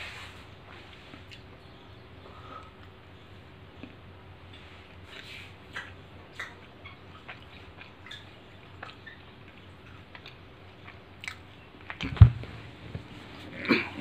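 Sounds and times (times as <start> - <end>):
person chewing food: 0.9 - 1.7, 3.7 - 12.2.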